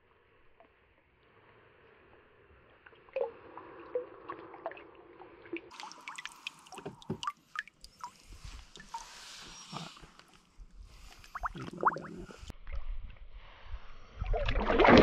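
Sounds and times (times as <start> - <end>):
water dripping and splashing: 3.1 - 9.3.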